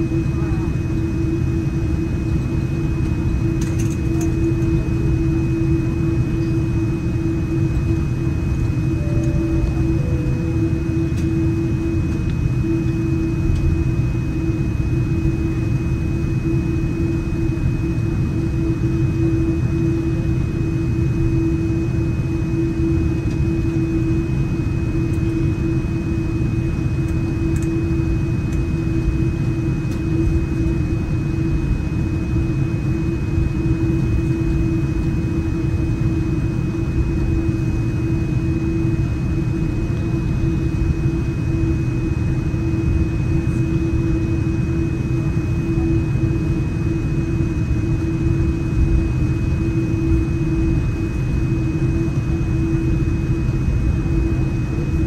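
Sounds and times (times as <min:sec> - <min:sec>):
airplane cabin rumble: 0:00.0 - 0:55.0
thin high whine: 0:08.5 - 0:13.2.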